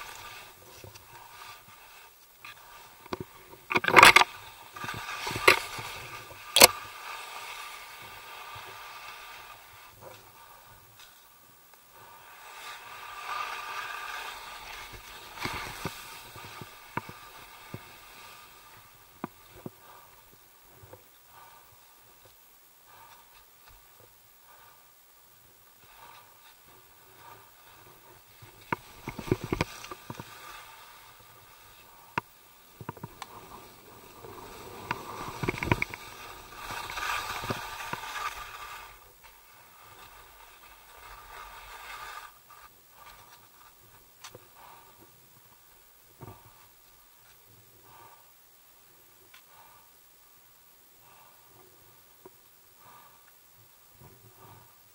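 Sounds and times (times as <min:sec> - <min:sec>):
skis sliding through snow: 0:00.0 - 0:22.3, 0:22.9 - 0:48.2
sharp clicks and knocks: 0:03.0 - 0:04.3.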